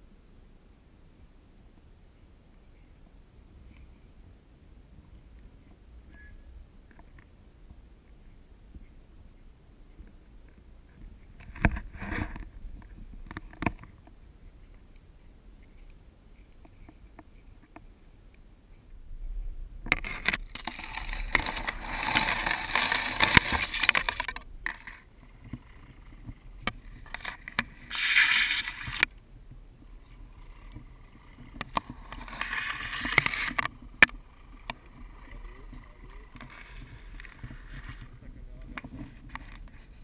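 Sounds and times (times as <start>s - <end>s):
toy truck rustling through reeds: 20.0s - 26.2s, 26.8s - 29.1s, 30.0s - 38.2s.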